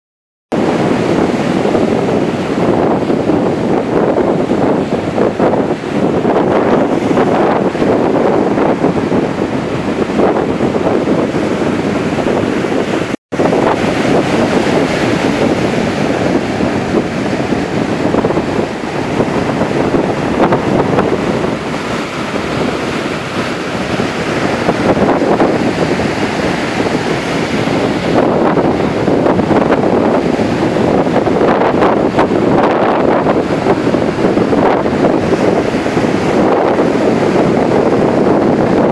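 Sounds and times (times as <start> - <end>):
ocean surf breaking on beach: 0.5 - 38.9
wind buffeting microphone: 0.5 - 38.9.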